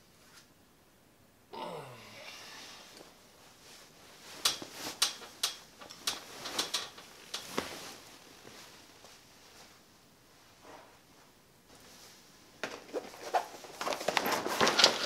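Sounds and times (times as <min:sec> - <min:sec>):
person sighing: 0:01.5 - 0:03.0
sharp clicks and knocks: 0:04.4 - 0:07.7.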